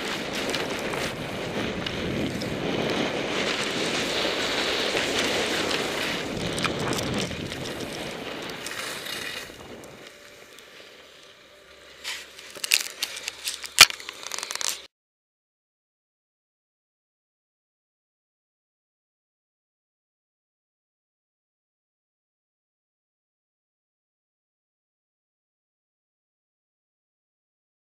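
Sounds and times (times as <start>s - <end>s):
wind rushing over microphone: 0.0s - 10.3s
skis scraping over snow: 0.0s - 14.9s.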